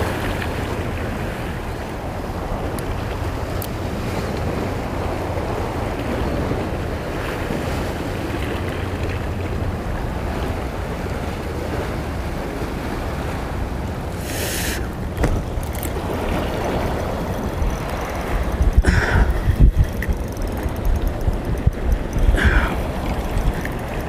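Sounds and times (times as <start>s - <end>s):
waves washing against rocks: 0.0s - 24.0s
wind rumbling on microphone: 0.0s - 24.0s
short loud hiss: 14.2s - 14.8s.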